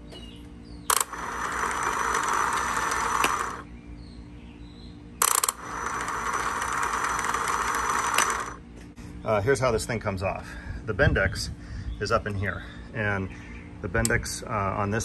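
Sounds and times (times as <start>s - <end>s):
outboard engine starter cranking: 0.9s - 3.6s, 5.2s - 8.6s
starter click: 0.9s - 3.6s, 5.2s - 8.6s.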